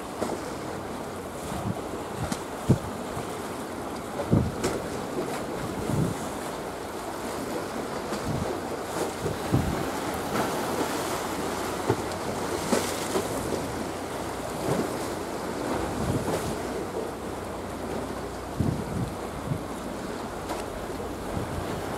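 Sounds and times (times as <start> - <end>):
sea waves washing: 0.0 - 21.9
wind buffeting microphone: 1.4 - 3.3, 4.2 - 4.8, 5.6 - 6.3, 8.1 - 13.8, 14.6 - 16.8, 18.5 - 20.2, 20.8 - 21.9.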